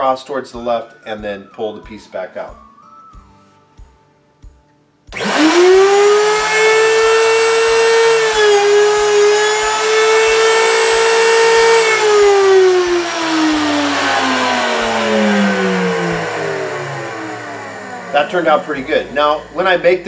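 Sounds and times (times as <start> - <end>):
router motor whining: 5.1 - 20.0.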